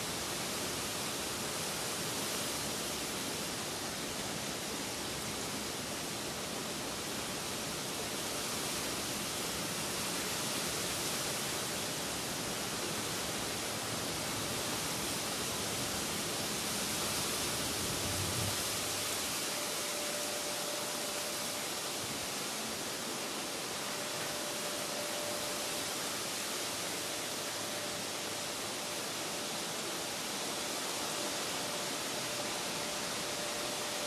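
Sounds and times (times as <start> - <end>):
steady rain falling: 0.0 - 34.0.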